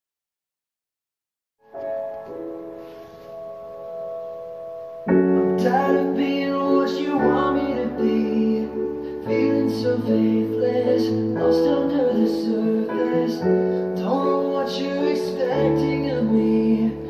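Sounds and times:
soft keyboard chord: 0:01.6 - 0:17.0
song with piano and bass: 0:01.6 - 0:17.0.

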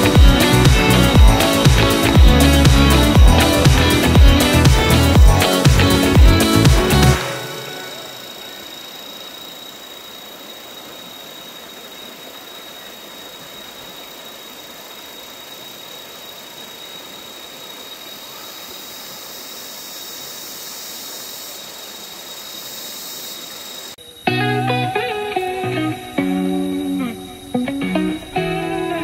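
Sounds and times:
high-pitched tone: 0:00.0 - 0:08.6
stream running over rocks: 0:00.0 - 0:23.9.

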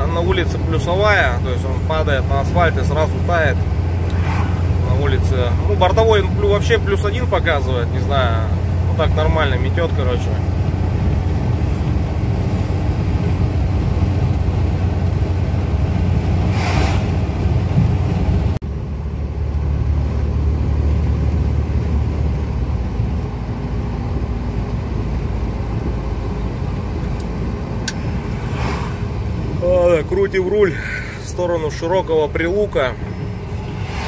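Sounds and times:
road noise: 0:00.0 - 0:34.0
truck diesel engine rumbling: 0:00.0 - 0:34.0
brief swish: 0:04.1 - 0:04.7, 0:16.5 - 0:17.2, 0:28.0 - 0:29.1.

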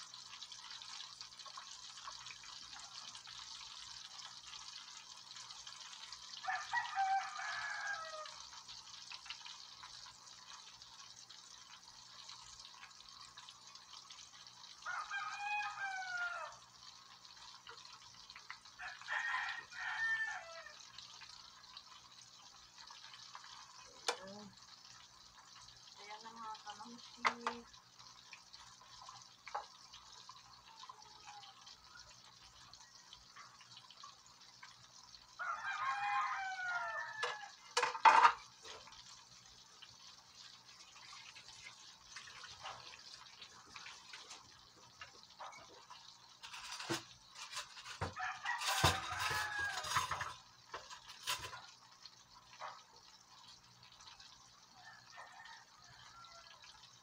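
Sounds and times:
oil sizzling: 0:00.0 - 0:57.0.

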